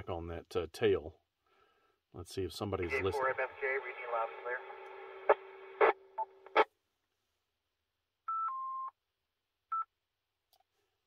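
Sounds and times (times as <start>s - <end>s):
radio low hum: 2.7s - 6.7s
sharp radio clicks: 2.9s - 6.7s.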